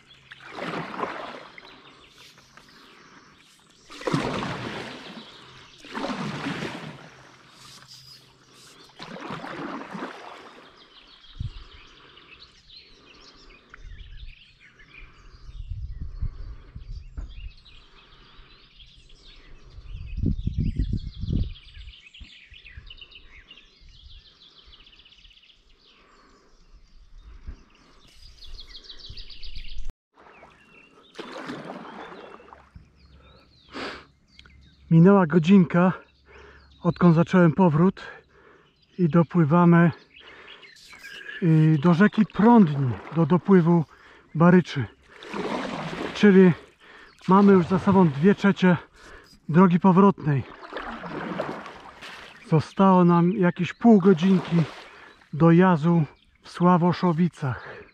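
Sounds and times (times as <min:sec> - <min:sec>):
paddle swishing through water: 0:00.0 - 0:11.4, 0:30.1 - 0:33.4, 0:40.3 - 0:49.6, 0:50.2 - 0:52.8, 0:53.9 - 0:55.4
small birds chirping: 0:00.0 - 0:57.9.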